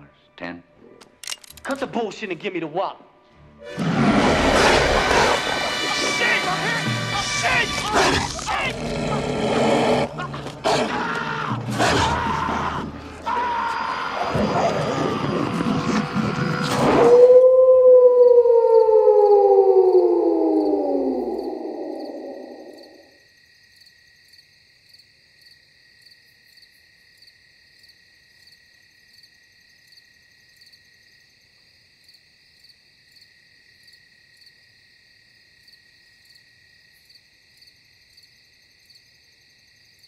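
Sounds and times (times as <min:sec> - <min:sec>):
wolf howling: 0:03.6 - 0:23.1
crickets trilling: 0:12.2 - 0:31.4.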